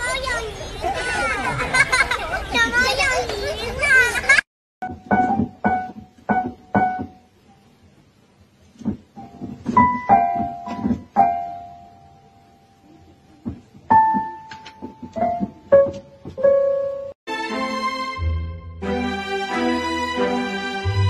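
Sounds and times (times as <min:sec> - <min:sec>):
unmusical piano notes: 0:04.8 - 0:07.5, 0:09.1 - 0:21.0
fuller piece of music: 0:16.5 - 0:21.0.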